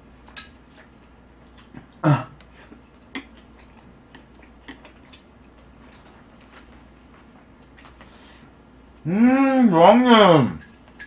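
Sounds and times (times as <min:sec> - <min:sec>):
person grunting: 0:02.0 - 0:02.3, 0:09.0 - 0:10.6.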